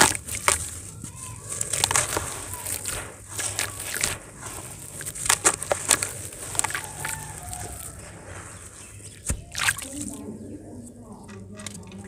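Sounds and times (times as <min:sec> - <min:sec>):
wet sand crunching between hands: 0:00.0 - 0:10.2
grains dropping into water: 0:09.1 - 0:10.1.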